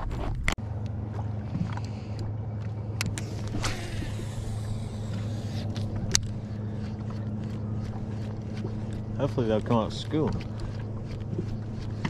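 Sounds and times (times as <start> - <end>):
boat motor humming: 0.0 - 12.0
fishing line hissing out: 3.2 - 5.7.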